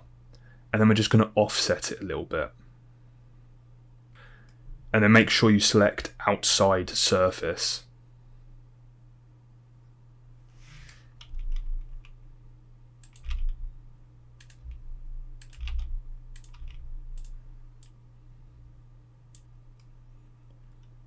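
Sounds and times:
steady low hum: 0.0 - 21.0
keyboard and mouse clicks: 13.0 - 13.6, 14.4 - 14.8, 15.4 - 18.0.

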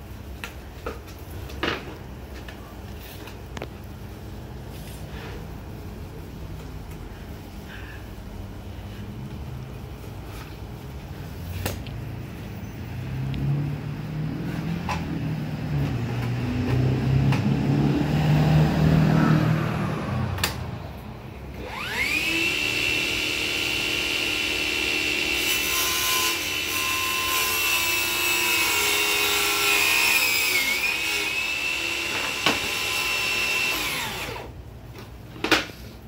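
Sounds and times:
table saw motor whining: 21.6 - 34.6.

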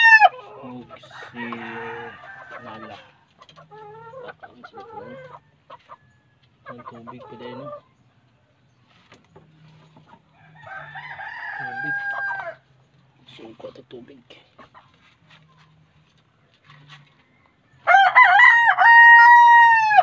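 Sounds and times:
chickens clucking: 0.0 - 20.0
rooster crowing: 1.1 - 3.1, 10.4 - 12.6, 17.8 - 20.0.

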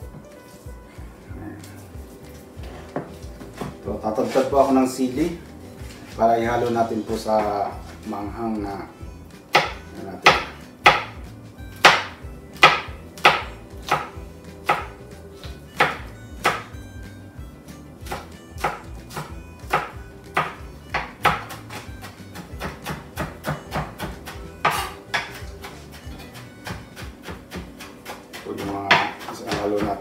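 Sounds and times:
background music: 0.0 - 30.0
knife chopping on cutting board: 9.5 - 16.8, 18.0 - 30.0.

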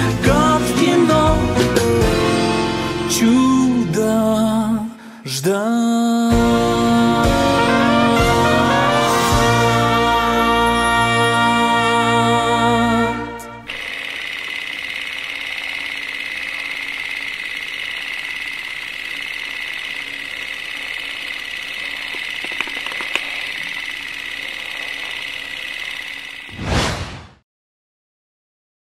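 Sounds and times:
song: 6.3 - 13.7
film projector whirring: 13.6 - 26.6.

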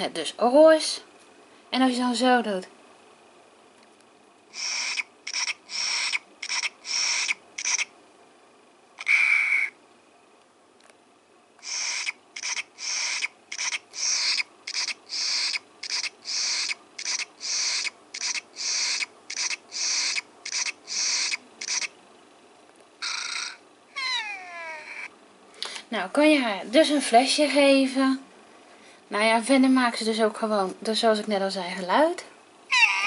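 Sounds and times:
toy electronic sucking sounds: 4.5 - 7.9, 9.0 - 9.8, 11.6 - 21.9, 23.0 - 25.1, 32.7 - 33.0.

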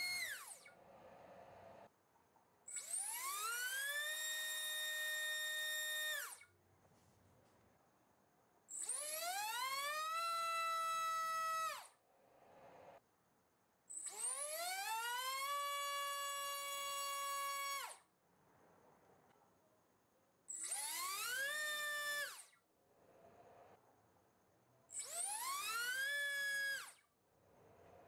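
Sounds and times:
electric motor propeller whine: 2.8 - 6.4.

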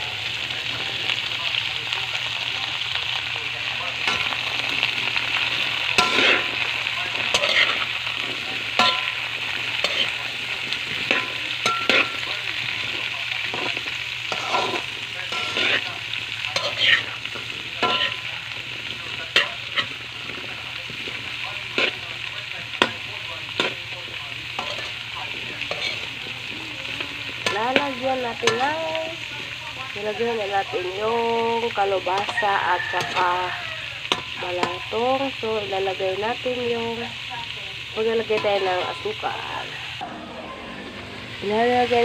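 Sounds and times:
vegetables sizzling in hot oil: 0.0 - 42.0
metal spatula scraping a wok: 4.0 - 23.9, 24.5 - 29.3, 31.7 - 35.0, 38.0 - 42.0
metal spatula clinking on wok: 6.0 - 6.4, 8.8 - 9.2, 11.0 - 12.4, 17.8 - 18.2, 24.6 - 25.0.

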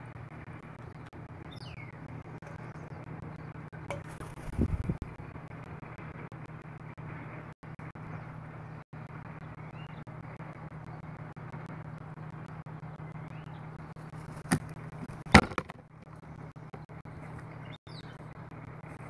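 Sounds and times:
background traffic hum: 0.0 - 19.0
bird knocking on planter: 15.3 - 15.8.

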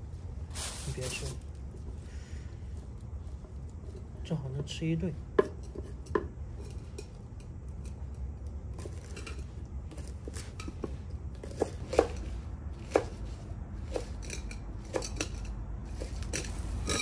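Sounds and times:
steady low rumble: 0.0 - 5.4.

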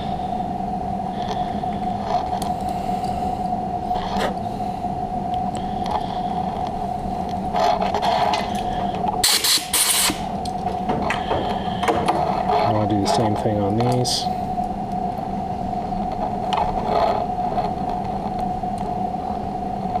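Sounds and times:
steady background hum: 0.0 - 20.0
compressed air hissing blasts: 9.2 - 10.3.

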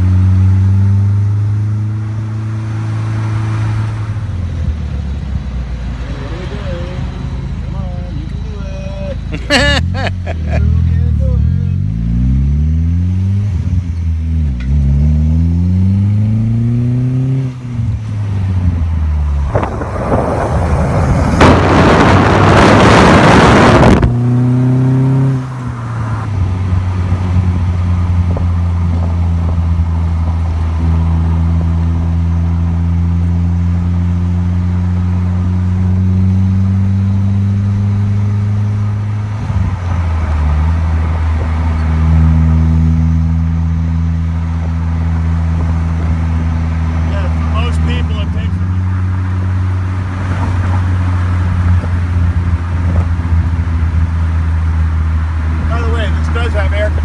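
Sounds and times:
car engine accelerating: 0.0 - 57.0
wind rushing over microphone: 17.8 - 30.8, 39.0 - 42.3, 49.8 - 56.3.

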